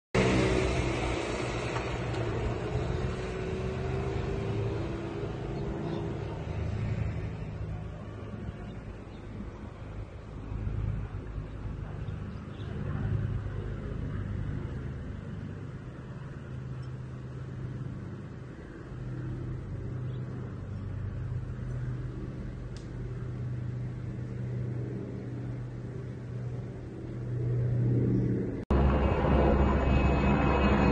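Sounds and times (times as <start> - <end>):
aircraft engine drone overhead: 0.1 - 30.9.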